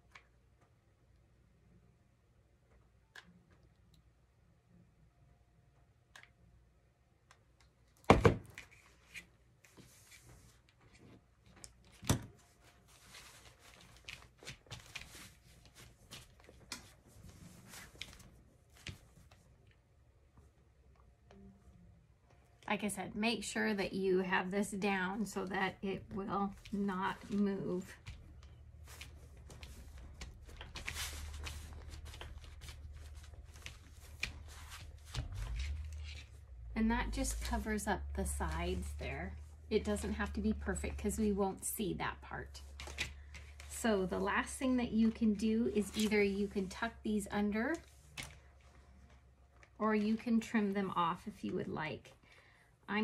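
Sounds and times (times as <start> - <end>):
low steady hum: 0.0 - 53.0
fabric rustling: 8.7 - 19.6, 26.0 - 36.6.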